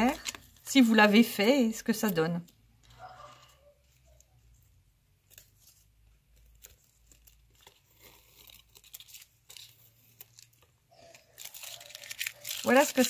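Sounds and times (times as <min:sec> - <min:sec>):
tape peeling off paper: 0:05.2 - 0:13.0.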